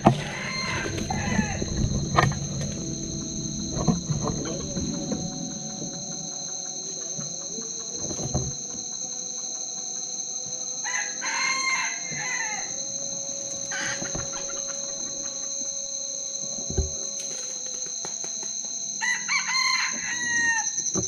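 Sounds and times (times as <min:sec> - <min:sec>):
rooster crowing: 0:00.0 - 0:08.0, 0:10.7 - 0:15.8, 0:19.0 - 0:20.9
high-pitched drone: 0:00.0 - 0:21.0.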